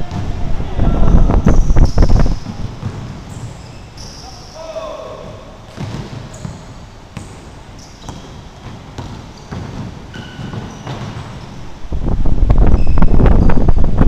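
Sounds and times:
sneakers squeaking: 0:01.1 - 0:11.8, 0:12.5 - 0:13.7
basketball bouncing on wooden floor: 0:01.5 - 0:03.6, 0:05.7 - 0:07.4, 0:08.0 - 0:11.5.

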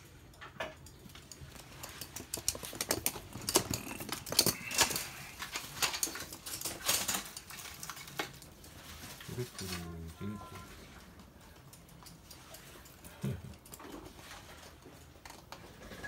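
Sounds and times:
dog claws clicking on floor: 0:00.3 - 0:09.1.

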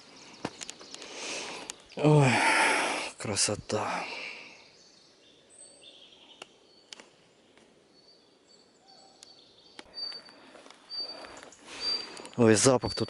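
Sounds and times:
sharp clicks: 0:06.4 - 0:07.7
high bird chirps: 0:07.9 - 0:13.0.

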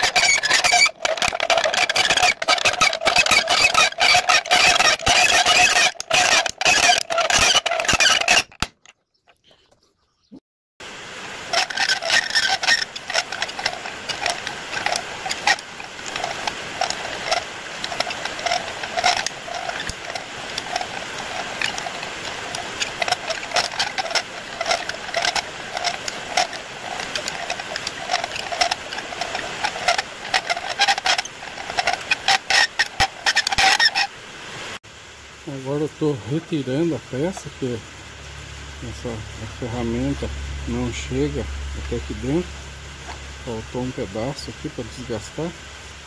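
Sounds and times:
metal cutting on a lathe: 0:00.0 - 0:08.5, 0:11.4 - 0:34.1.

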